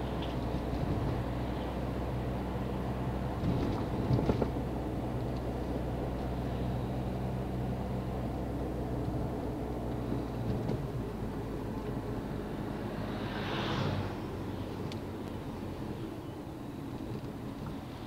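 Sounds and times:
car engine hum: 0:00.0 - 0:18.0
tyre and road noise: 0:00.0 - 0:18.0
vehicle passing: 0:12.0 - 0:14.9.

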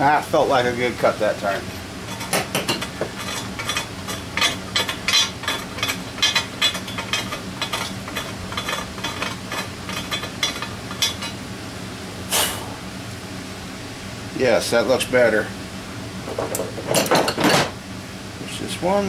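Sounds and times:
ratchet clicking and scraping metal: 0:02.1 - 0:11.4.

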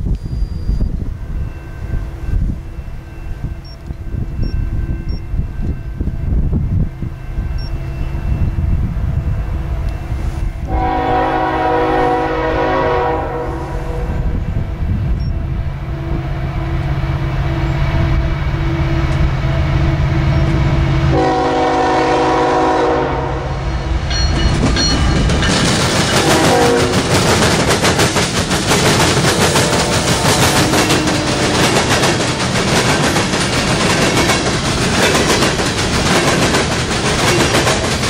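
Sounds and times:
locomotive air horn blasts: 0:10.1 - 0:14.4, 0:15.5 - 0:24.0, 0:26.1 - 0:27.0, 0:29.3 - 0:31.7.

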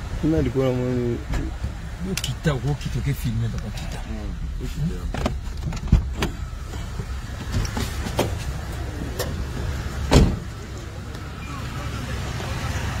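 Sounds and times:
car rumble inside cabin: 0:00.0 - 0:13.0
sharp knocks and thumps: 0:05.0 - 0:08.6.

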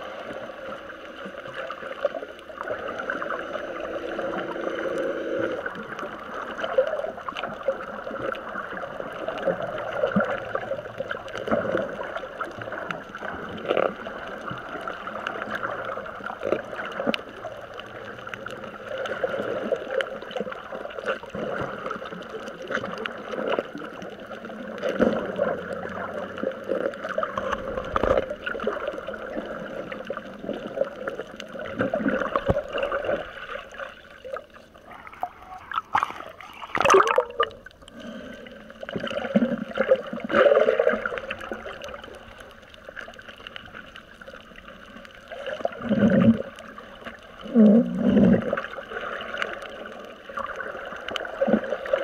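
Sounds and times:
water sloshing and gurgling: 0:00.0 - 0:52.0
water splash: 0:35.0 - 0:37.7.

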